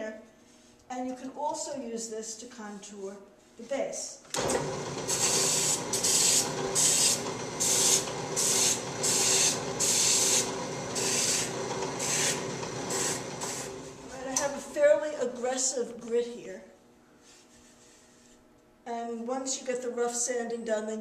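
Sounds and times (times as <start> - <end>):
drill press motor hum: 4.4 - 14.8.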